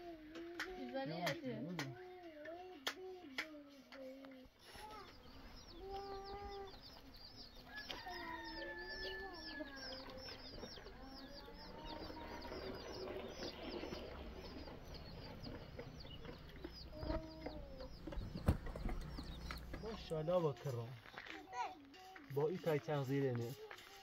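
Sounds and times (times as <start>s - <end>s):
chicks cheeping: 4.6s - 20.9s
hen clucking: 5.0s - 20.5s.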